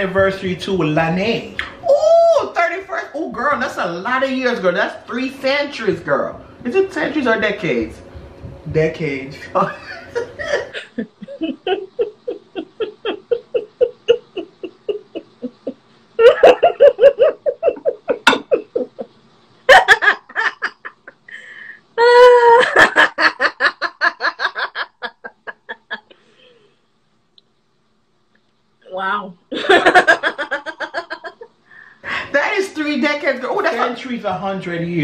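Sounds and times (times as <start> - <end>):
hearty laughter: 9.7 - 21.3, 22.6 - 26.2.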